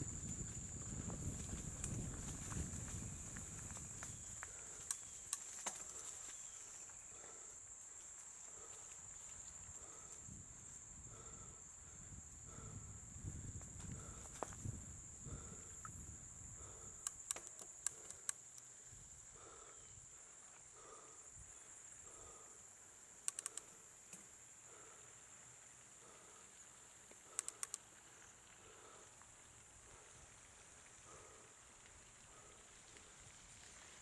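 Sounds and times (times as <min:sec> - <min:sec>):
crickets trilling: 0:00.0 - 0:34.0
sharp clicks: 0:17.0 - 0:18.7, 0:23.2 - 0:24.2, 0:27.2 - 0:27.9.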